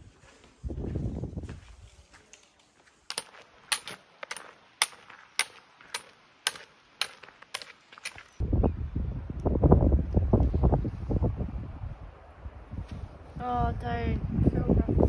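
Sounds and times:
wind gust on microphone: 0:00.0 - 0:02.0, 0:08.4 - 0:15.0
trekking poles clicking on gravel: 0:02.2 - 0:08.4.

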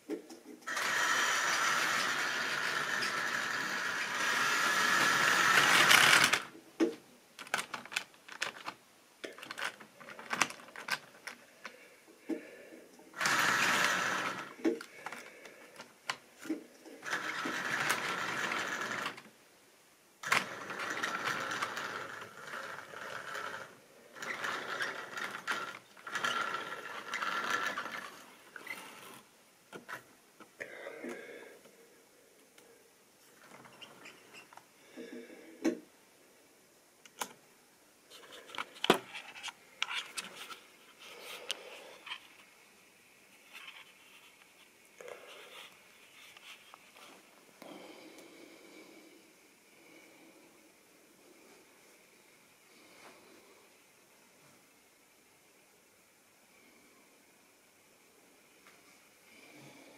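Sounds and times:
model train running: 0:00.7 - 0:06.5, 0:13.2 - 0:14.5, 0:17.0 - 0:19.2, 0:20.2 - 0:28.2.

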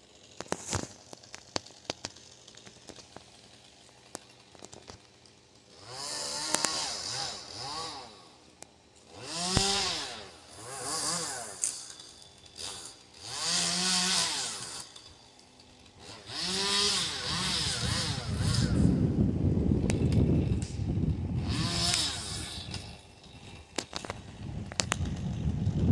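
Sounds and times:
chainsaw revving: 0:00.0 - 0:25.9
wind on microphone: 0:17.3 - 0:22.9, 0:24.3 - 0:25.9.

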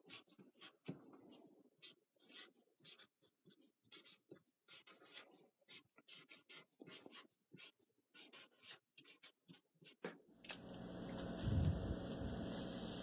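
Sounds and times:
marker pen scratching on cardboard: 0:00.0 - 0:10.1.

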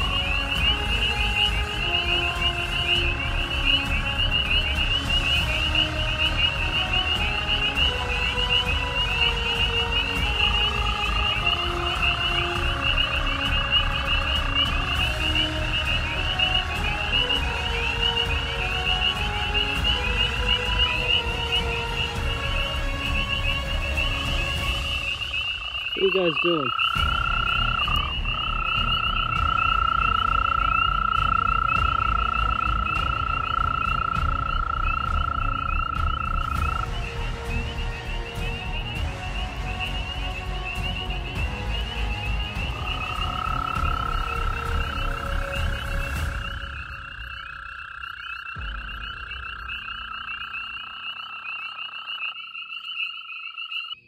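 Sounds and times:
frogs trilling: 0:00.0 - 0:54.0
lower steady frog trill: 0:00.0 - 0:54.0
low rumble: 0:26.8 - 0:51.5.

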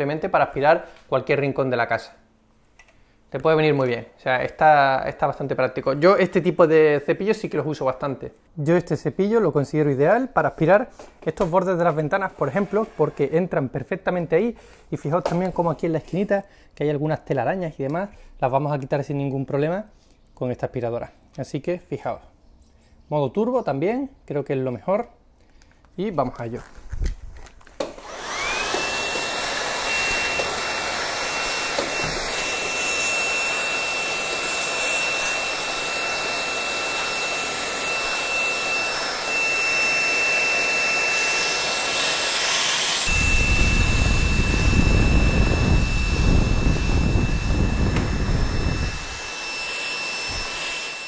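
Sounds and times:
vacuum motor whining: 0:27.8 - 0:51.0.

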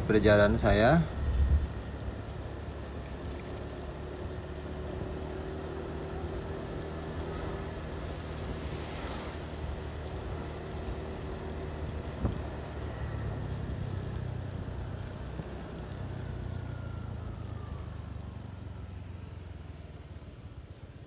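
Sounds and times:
wind noise on microphone: 0:01.2 - 0:01.8, 0:12.1 - 0:12.6.

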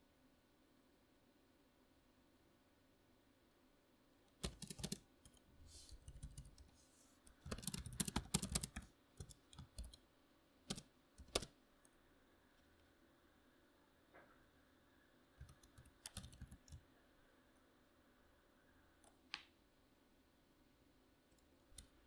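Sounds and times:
typing on computer keyboard: 0:04.4 - 0:05.4, 0:06.0 - 0:06.7, 0:07.3 - 0:10.0, 0:10.7 - 0:11.5, 0:15.4 - 0:16.8.

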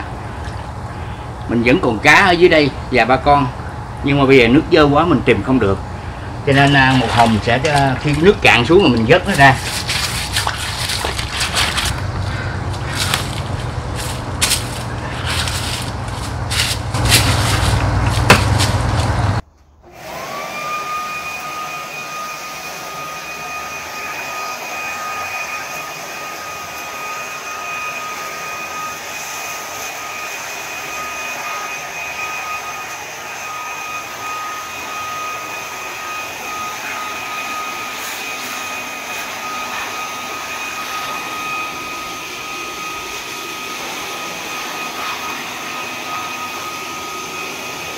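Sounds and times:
electric leaf blower whine: 0:00.0 - 0:47.9
scraping and clattering plastic bucket: 0:09.6 - 0:19.2
sharp knock: 0:18.2 - 0:18.8.

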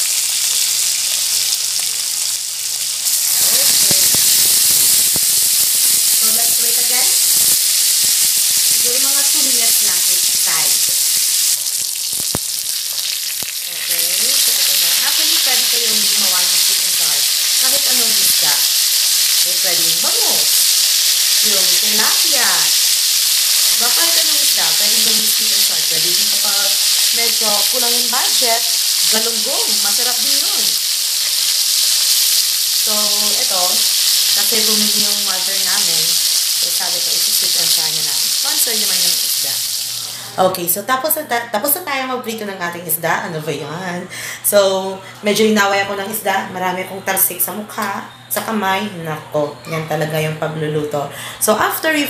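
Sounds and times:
fish sizzling in hot oil: 0:00.0 - 0:40.4.

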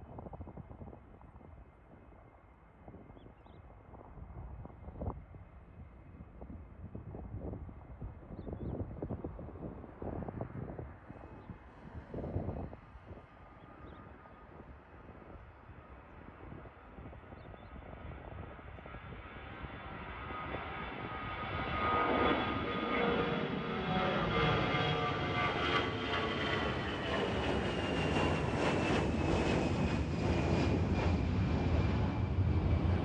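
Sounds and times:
jet airliner taking off: 0:16.0 - 0:33.0.

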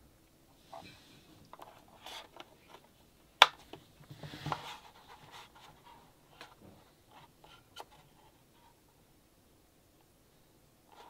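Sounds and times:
rustling and scraping on a desk: 0:00.6 - 0:03.0, 0:03.7 - 0:08.8.

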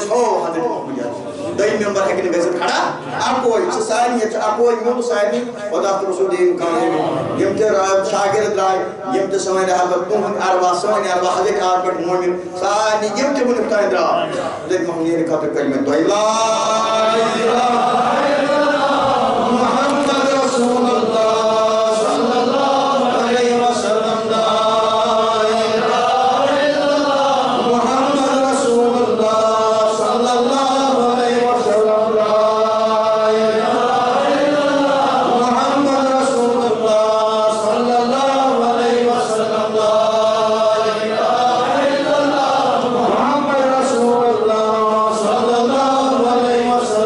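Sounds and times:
voices chanting in long held lines: 0:16.0 - 0:47.0.

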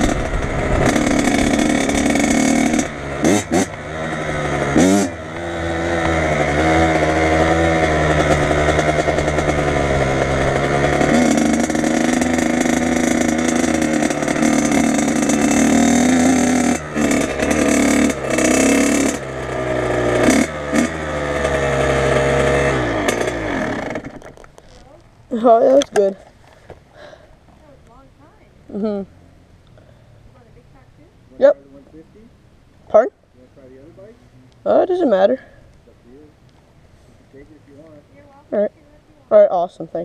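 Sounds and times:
dirt bike engine revving: 0:00.0 - 0:26.2.

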